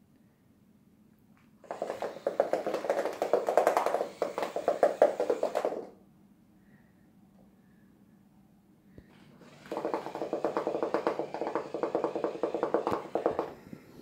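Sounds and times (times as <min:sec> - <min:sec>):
ball rattling on hard floor: 0:01.6 - 0:06.0, 0:09.4 - 0:13.6.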